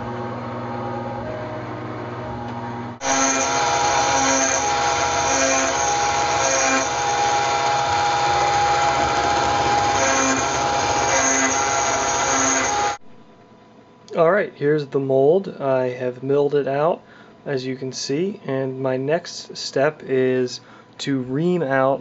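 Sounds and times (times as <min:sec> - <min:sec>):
milling machine spindle whining: 0:00.0 - 0:13.0
end mill cutting aluminum: 0:03.0 - 0:13.0.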